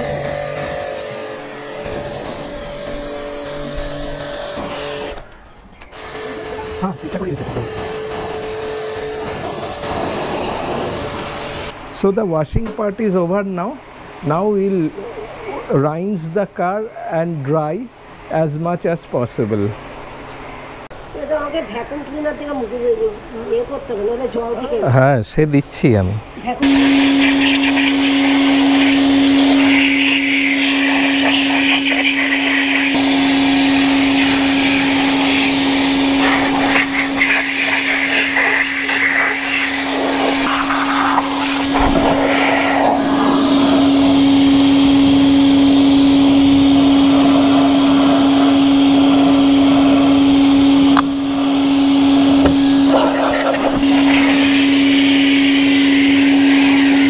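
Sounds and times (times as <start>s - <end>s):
vacuum motor whining: 0.0s - 11.8s, 26.6s - 57.0s
air rushing from hose: 7.7s - 11.7s, 26.6s - 57.0s.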